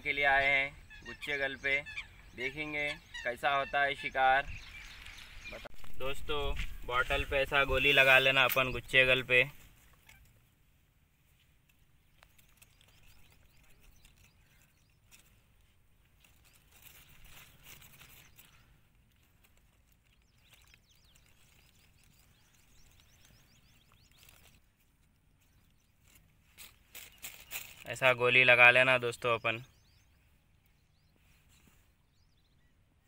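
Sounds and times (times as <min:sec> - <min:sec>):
faint bird chirps: 0:00.0 - 0:33.0
plastic bag rustling: 0:16.2 - 0:23.0, 0:26.1 - 0:28.0.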